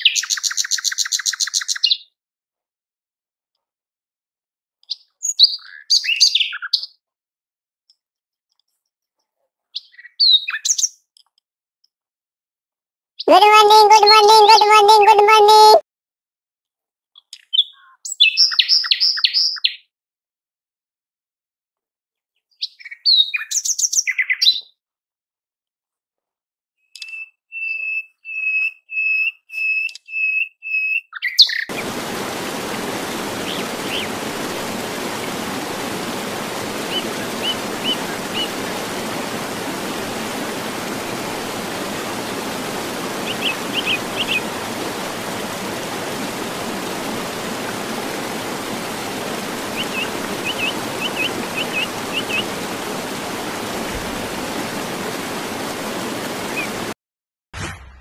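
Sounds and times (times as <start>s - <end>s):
bird chirps and whistles: 27.0s - 31.8s
steady hiss: 31.7s - 56.9s.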